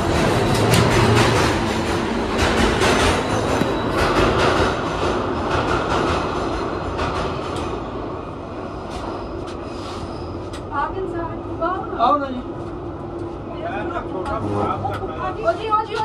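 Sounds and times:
wheels clacking over rail joints: 0.0 - 7.9
subway train rumble: 0.0 - 16.0.

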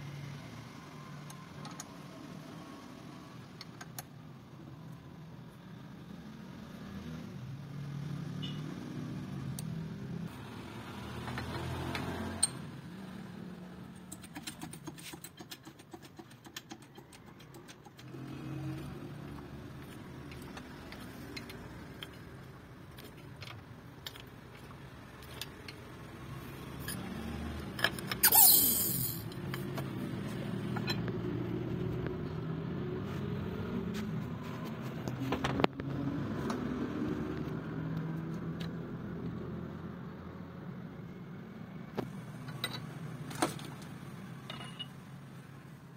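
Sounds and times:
burst of hiss: 28.2 - 29.2
metal tools clinking: 44.5 - 45.0.

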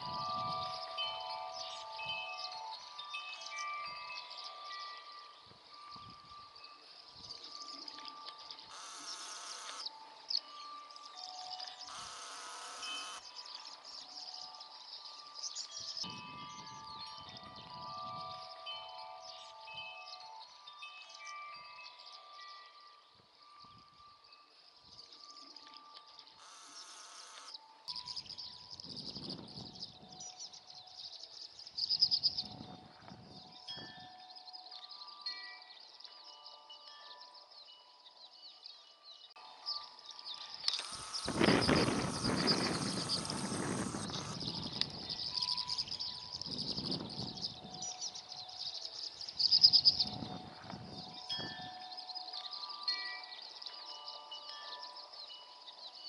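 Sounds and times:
wind rumble on microphone: 0.0 - 0.8, 16.0 - 18.4, 28.2 - 30.3, 32.0 - 34.1, 41.0 - 48.0, 49.4 - 51.8
wind chimes ringing: 0.0 - 56.0
birds twittering: 5.8 - 20.4, 36.0 - 56.0.

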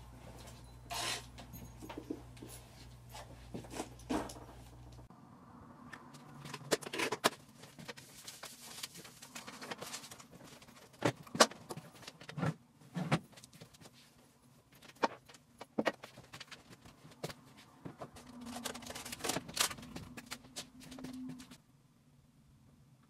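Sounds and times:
rustling: 6.4 - 21.6.

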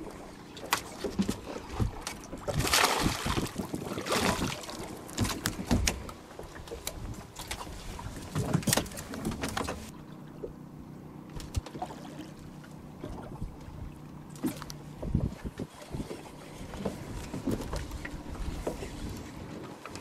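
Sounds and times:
fish splashing in water: 0.6 - 6.0.

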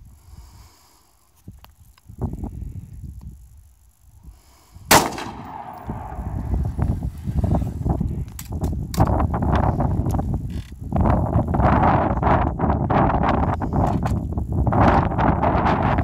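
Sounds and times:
wind rumbling on microphone: 1.4 - 16.0
rifle shot with echo: 4.9 - 7.1.

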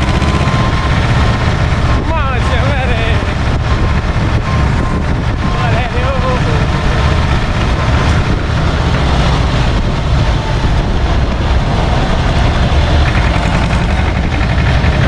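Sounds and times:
tractor diesel engine rumbling: 0.0 - 15.0.

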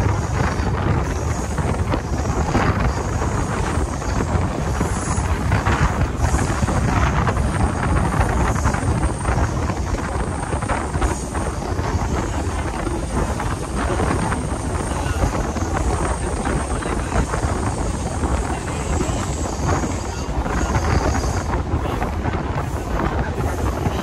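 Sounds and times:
electric train low rumble: 0.0 - 24.0
wind buffeting microphone: 0.0 - 24.0.

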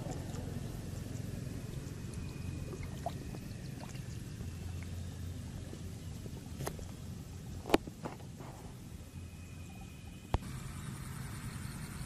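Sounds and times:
light water sounds: 0.0 - 8.4
wind rumbling on microphone: 0.0 - 9.2.

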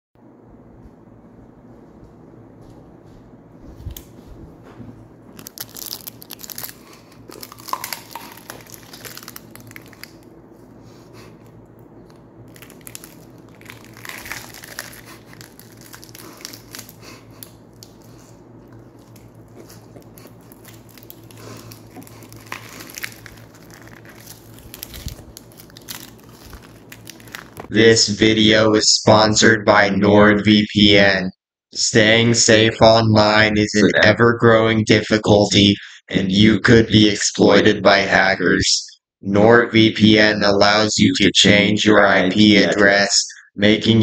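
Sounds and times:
crunching raw onion: 5.3 - 27.7.

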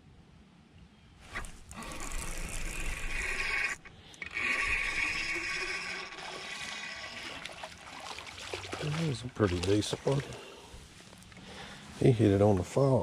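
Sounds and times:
fishing reel gears whirring: 1.4 - 7.5.

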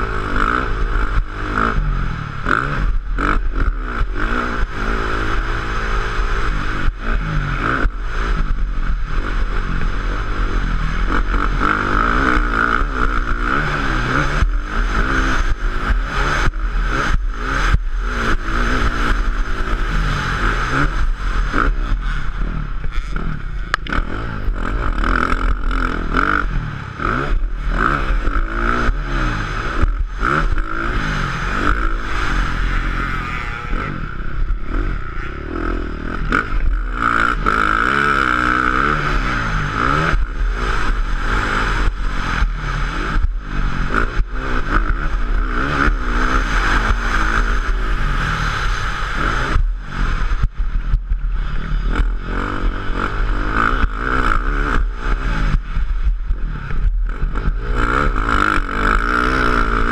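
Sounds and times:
motocross bike engine revving: 0.0 - 59.9.

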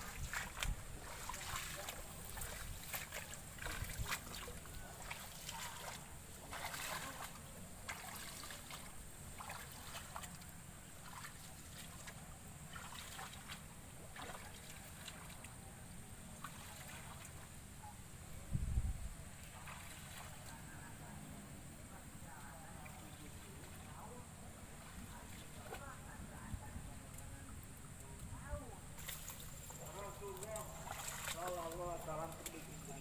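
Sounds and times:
rustling of leaves and stems: 0.0 - 15.4, 28.3 - 33.0
water splashing and sloshing: 0.0 - 15.7, 16.3 - 17.6, 19.3 - 20.9, 22.6 - 26.8, 27.5 - 33.0.

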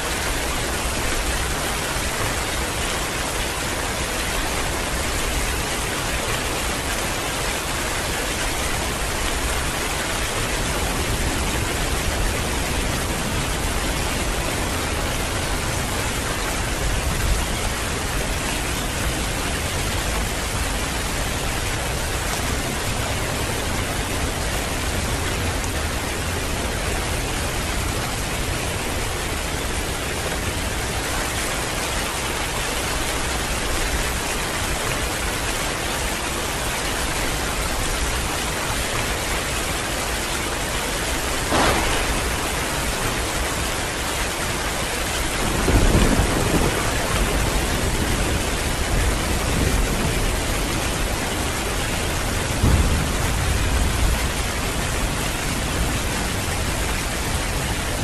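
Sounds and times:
heavy rain falling: 0.0 - 58.0
short low rumble: 41.5 - 43.7.

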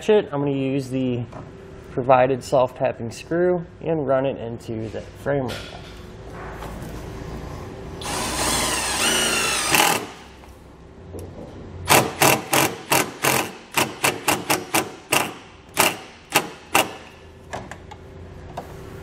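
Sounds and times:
cordless driver motor whirring: 8.0 - 10.2.

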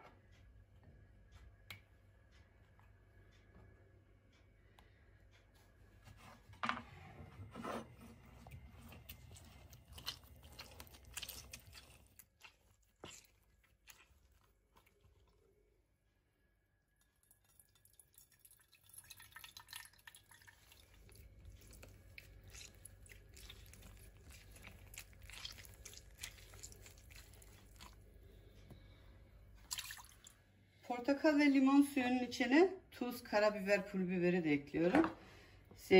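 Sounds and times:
wet squelches and drips: 8.2 - 15.8, 17.0 - 30.9
juice pouring into metal bowl: 17.0 - 28.8, 29.6 - 30.4.

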